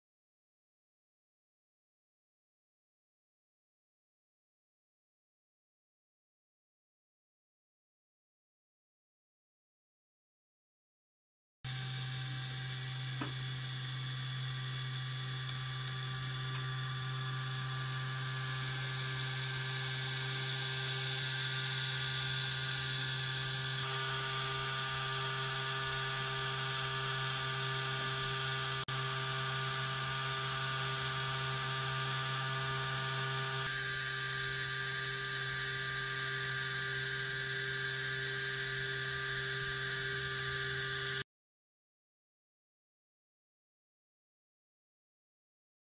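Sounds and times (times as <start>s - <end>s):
small electric motor whirring: 11.7s - 41.2s.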